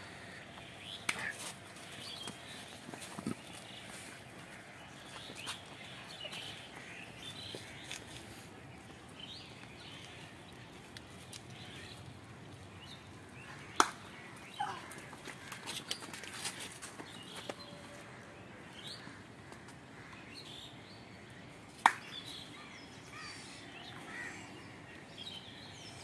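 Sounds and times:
birds chirping: 0.0s - 26.0s
sharp hand clap: 13.8s - 14.0s, 21.8s - 22.1s
open-air hiss: 16.5s - 26.0s.

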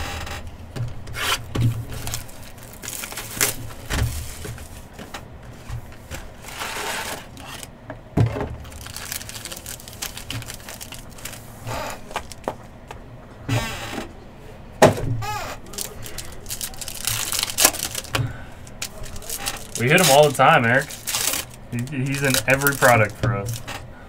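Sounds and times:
packaging rustling: 0.9s - 7.7s, 8.5s - 12.9s, 15.3s - 23.8s.

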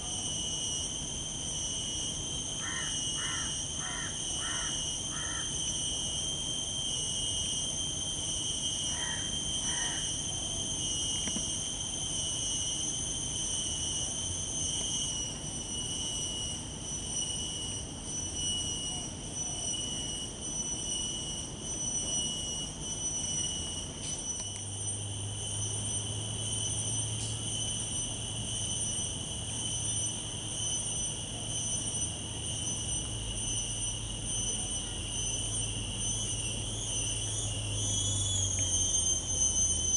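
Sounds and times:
insects droning: 0.0s - 39.9s
crow cawing: 2.6s - 5.5s.

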